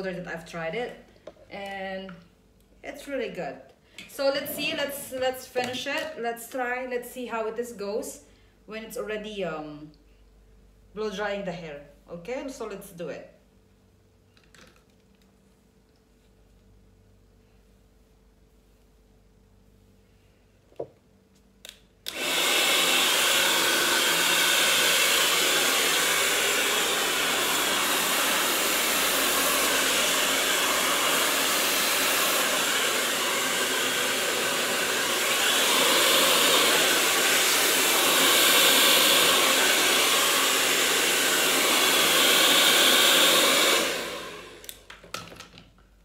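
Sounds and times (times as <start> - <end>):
hair dryer switch clicks: 21.6 - 22.5, 44.6 - 45.0
hair dryer blowing: 22.0 - 44.9.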